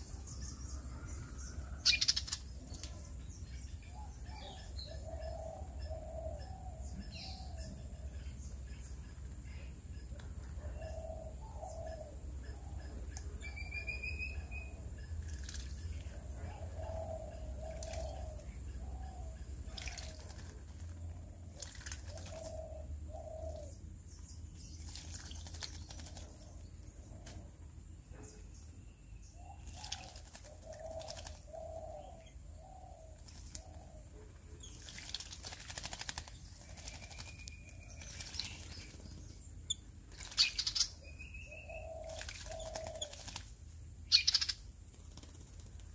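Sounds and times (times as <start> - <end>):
higher bird chirps: 0.0 - 2.8, 44.1 - 44.6
bird splashing in water: 15.2 - 16.0, 17.7 - 18.4, 19.7 - 22.6, 24.8 - 26.3, 29.6 - 31.4, 34.6 - 39.0, 42.0 - 43.6.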